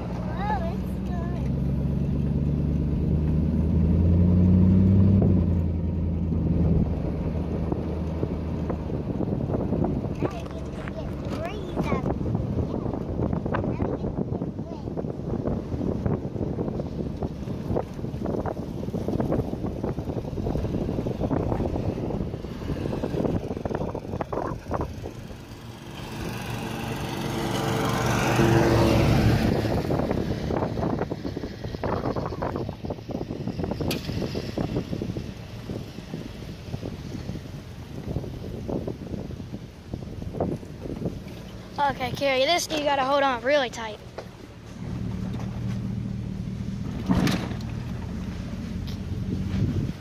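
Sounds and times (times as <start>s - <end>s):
wind buffeting microphone: 0.0s - 50.0s
cart engine humming: 16.8s - 50.0s.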